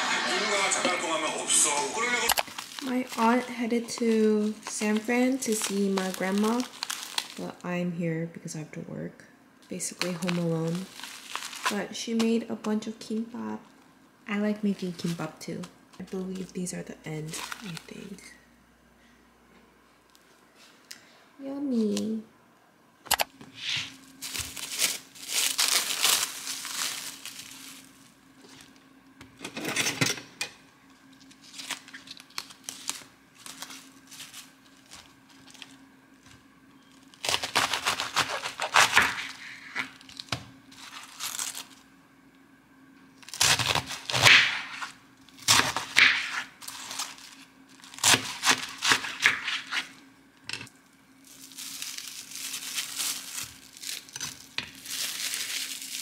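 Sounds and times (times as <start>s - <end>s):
plastic wrap crinkling: 2.1s - 7.8s, 9.7s - 13.7s, 14.7s - 18.3s, 23.7s - 28.9s, 30.9s - 41.9s, 43.2s - 50.0s, 51.2s - 56.0s
cabbage leaves snapping and tearing: 2.3s - 7.4s, 9.9s - 12.4s, 24.2s - 27.8s, 31.2s - 35.8s, 37.1s - 41.8s, 43.2s - 49.9s, 51.3s - 56.0s
knife cutting plastic wrap: 2.4s - 7.5s, 9.8s - 13.2s, 23.6s - 27.9s, 31.2s - 35.8s, 37.0s - 41.8s, 43.2s - 49.9s, 51.3s - 56.0s.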